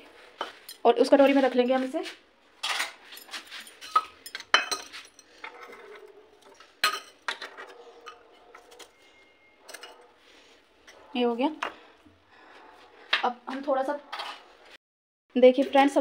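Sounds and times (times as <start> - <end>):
metal kitchenware clinking: 2.6 - 10.1.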